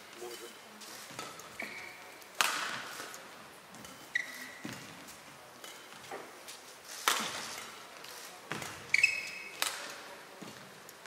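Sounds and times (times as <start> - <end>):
shoe squeak on court floor: 0.3 - 2.1, 3.8 - 4.9, 8.5 - 9.8
racket hitting shuttlecock: 2.4 - 7.8, 8.5 - 10.7.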